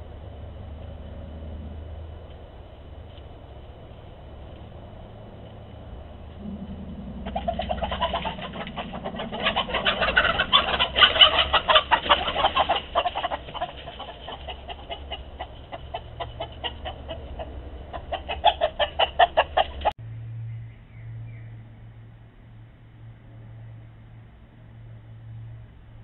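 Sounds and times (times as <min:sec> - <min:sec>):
hens clucking: 0:01.6 - 0:20.0.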